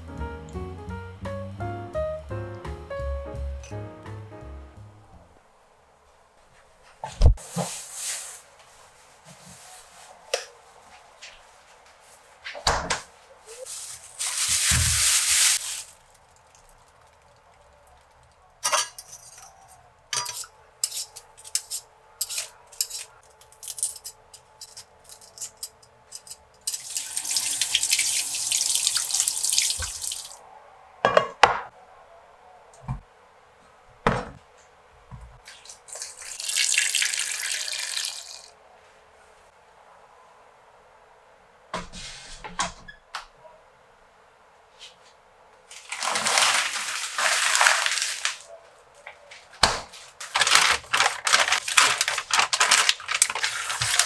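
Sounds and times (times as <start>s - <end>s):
peeler scraping potatoes: 20.2s - 27.1s
running water: 26.7s - 30.4s, 35.4s - 38.5s
water poured from a jug: 26.7s - 30.4s, 35.5s - 38.5s, 45.7s - 48.4s.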